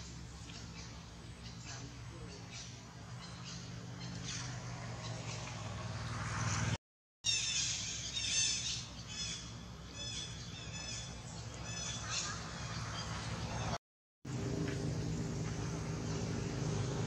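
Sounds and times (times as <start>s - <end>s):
baby monkey squeaking calls: 7.3s - 9.4s
steady low hum: 14.3s - 17.0s.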